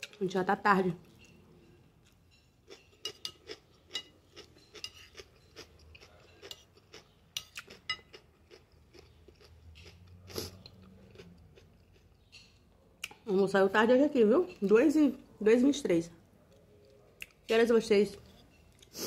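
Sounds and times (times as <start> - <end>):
person chewing food: 1.0 - 13.2, 16.4 - 17.5.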